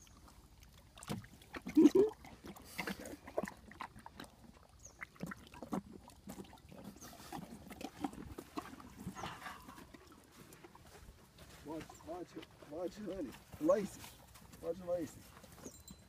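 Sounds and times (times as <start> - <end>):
pony splashing in water: 0.0 - 11.2
pony snuffling: 0.1 - 16.0.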